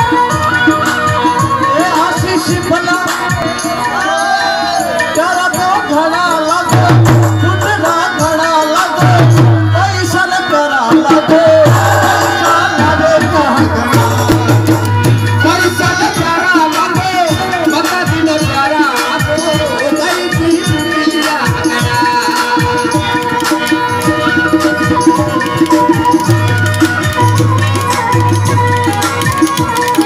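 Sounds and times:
harmonium: 0.0 - 30.0
man singing: 1.6 - 25.5.

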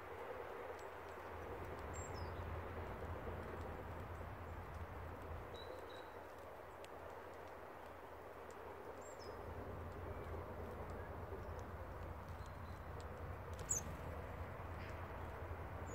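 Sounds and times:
small birds calling: 9.0 - 14.1.

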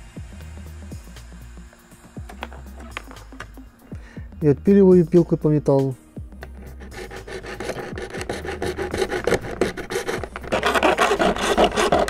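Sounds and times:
hacksaw cutting plastic sheet: 6.4 - 12.0.

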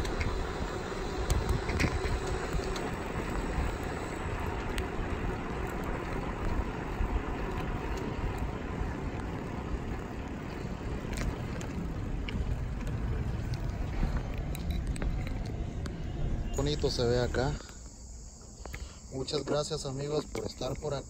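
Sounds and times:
wind buffeting microphone: 0.0 - 17.6
faint clicks: 0.0 - 21.0
rumble of movement over asphalt: 0.0 - 21.0.

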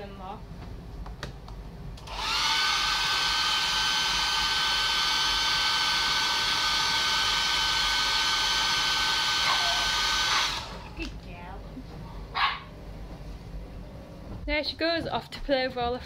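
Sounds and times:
hair dryer running: 2.0 - 11.2.

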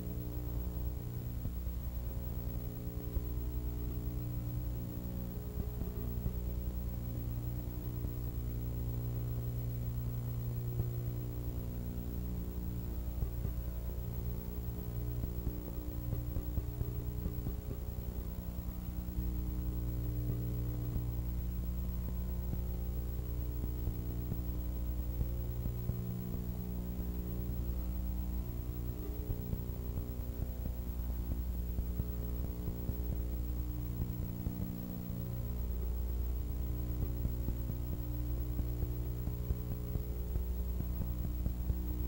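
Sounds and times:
electrical mains hum: 0.0 - 42.0.

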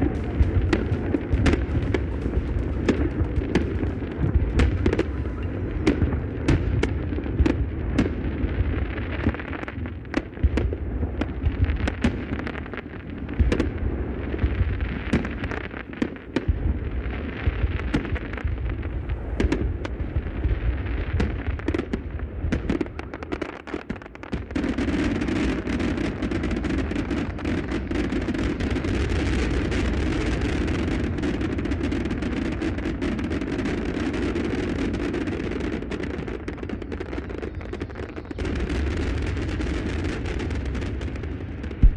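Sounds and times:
low rumble: 0.0 - 6.9
fireworks bangs and crackles: 0.0 - 41.9.

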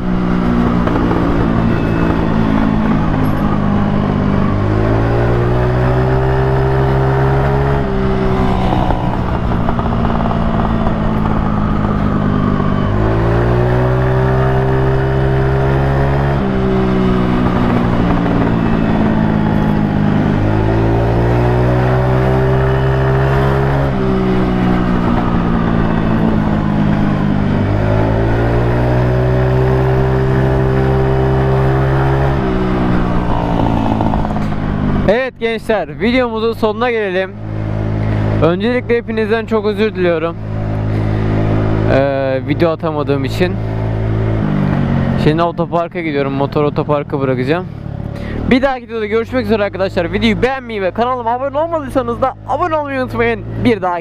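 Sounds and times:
scooter engine revving: 0.0 - 35.2.

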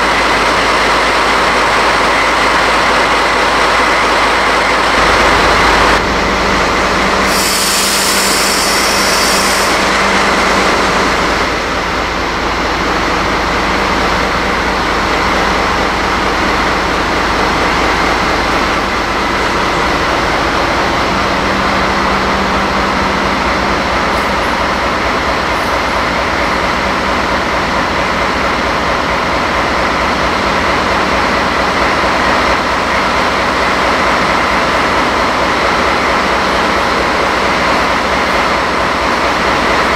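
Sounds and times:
diesel locomotive engine running: 0.0 - 39.9
wheel noise on rails: 0.0 - 39.9
high hiss: 7.2 - 10.1.

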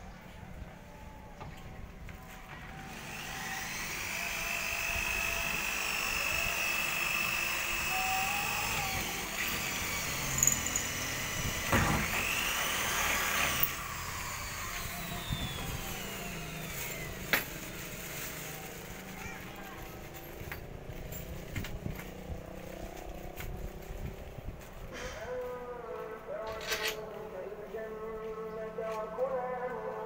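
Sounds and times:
electric drill whining: 2.7 - 19.1.

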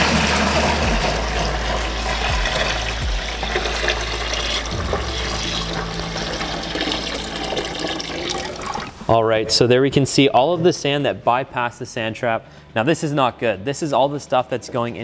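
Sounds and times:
water pouring into plastic bucket: 0.0 - 9.0.

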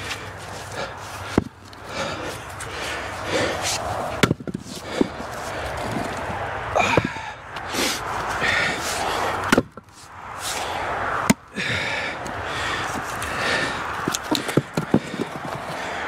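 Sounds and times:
axe striking firewood: 4.1 - 5.2, 9.4 - 9.9, 11.2 - 11.5.

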